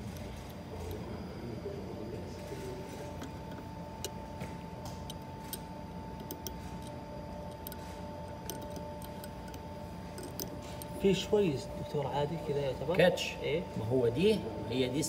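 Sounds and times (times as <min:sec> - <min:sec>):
steady hum: 0:00.0 - 0:15.0
metal probe clicking on plastic: 0:06.2 - 0:10.9.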